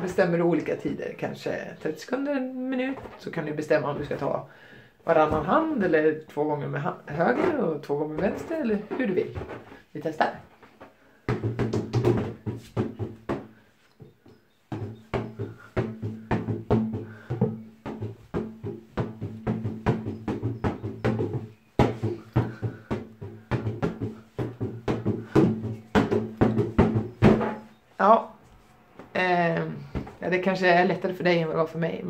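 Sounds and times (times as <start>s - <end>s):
balloon tapping against tiled wall: 11.2s - 27.8s.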